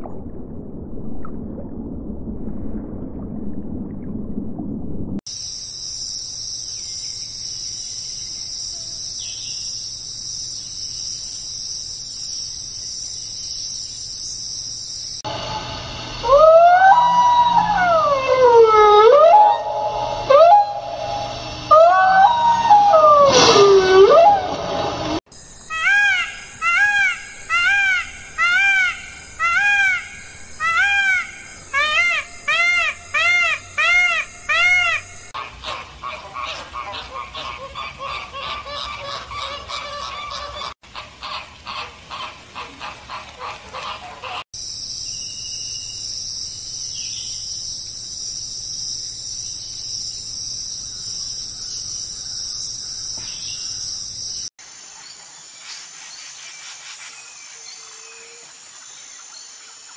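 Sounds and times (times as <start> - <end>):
high-pitched drone: 15.3 - 25.2
rapid pulsed animal calls: 16.0 - 24.9.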